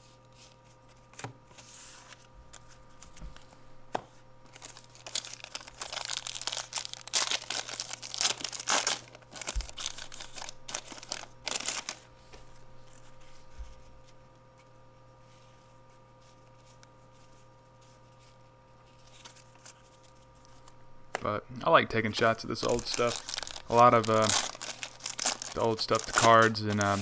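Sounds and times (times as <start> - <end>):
wrapper crinkling and tearing: 4.5 - 12.1, 22.4 - 27.0.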